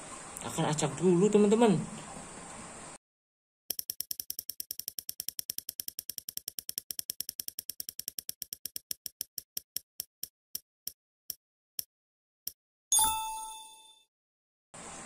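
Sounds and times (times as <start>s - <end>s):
prize wheel ticking: 3.7s - 10.1s.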